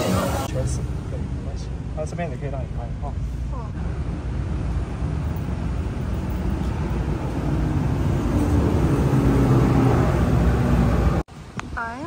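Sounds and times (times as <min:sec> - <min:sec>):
vehicle engine rumble: 0:00.0 - 0:12.0.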